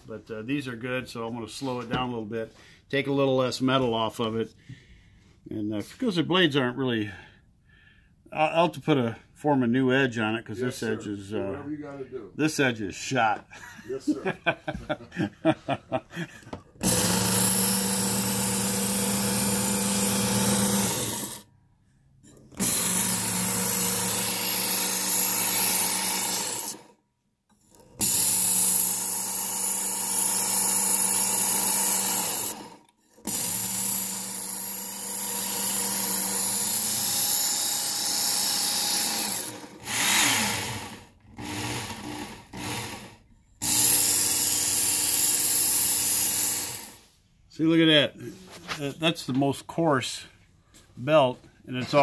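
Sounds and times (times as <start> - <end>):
belt sharpener grinding knife: 27.5 - 40.5.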